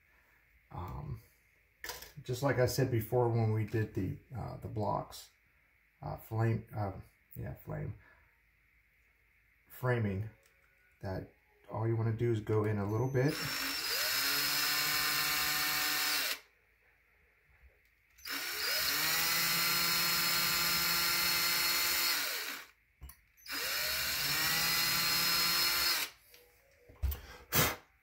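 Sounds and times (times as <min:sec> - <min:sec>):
cordless drill whining: 0:13.0 - 0:16.4, 0:18.2 - 0:22.8, 0:23.4 - 0:26.2.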